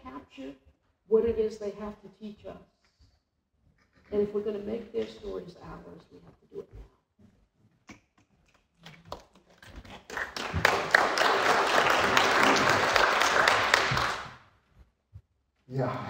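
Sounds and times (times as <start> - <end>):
audience applauding: 9.1 - 14.4.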